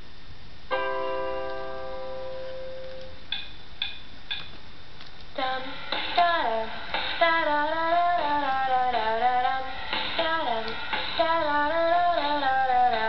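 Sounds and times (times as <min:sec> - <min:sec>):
woman singing through laptop speakers: 0:05.3 - 0:13.0.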